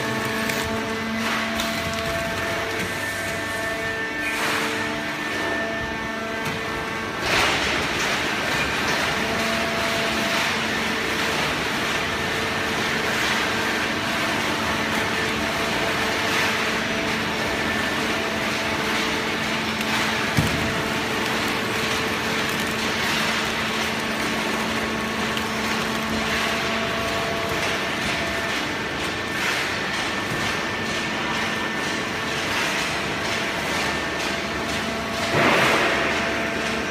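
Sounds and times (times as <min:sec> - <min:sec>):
baler mechanical hum: 0:00.0 - 0:36.9.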